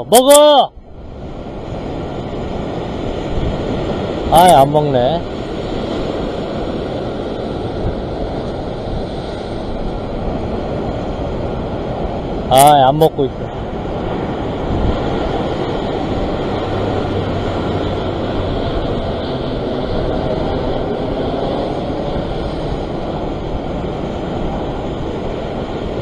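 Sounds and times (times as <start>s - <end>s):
surf breaking over rocks: 0.0s - 26.0s.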